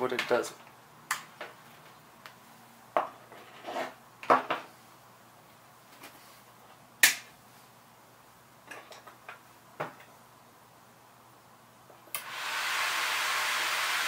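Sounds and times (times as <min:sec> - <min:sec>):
cooling fan rushing: 0:12.2 - 0:14.0.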